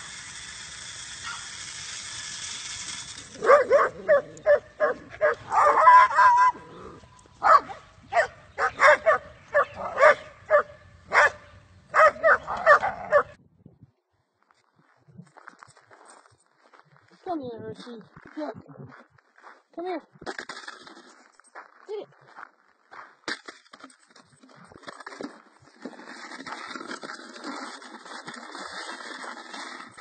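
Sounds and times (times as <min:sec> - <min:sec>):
dog barking: 0:03.4 - 0:06.6, 0:07.4 - 0:13.4.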